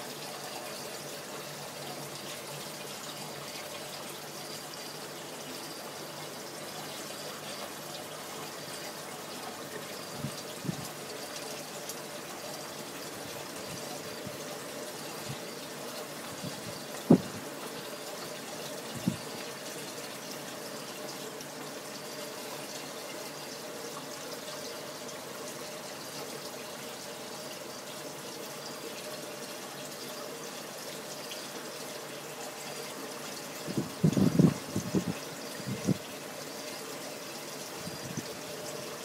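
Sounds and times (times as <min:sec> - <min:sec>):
aquarium water running: 0:00.0 - 0:39.0.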